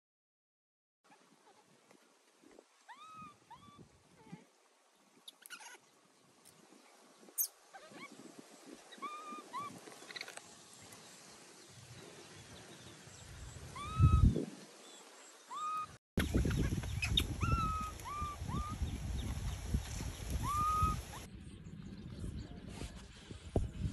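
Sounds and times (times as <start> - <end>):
high animal calls: 20.4 - 21.3.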